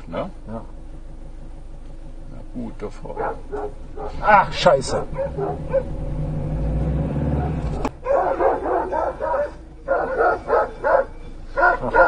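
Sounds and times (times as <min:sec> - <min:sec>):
low steady rumble: 0:00.0 - 0:12.0
dog barking: 0:03.1 - 0:04.3, 0:05.0 - 0:06.0, 0:07.3 - 0:12.0.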